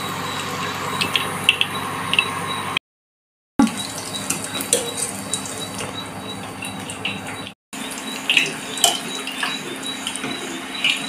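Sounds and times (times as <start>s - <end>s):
food deep-frying in hot oil: 3.6s - 11.0s.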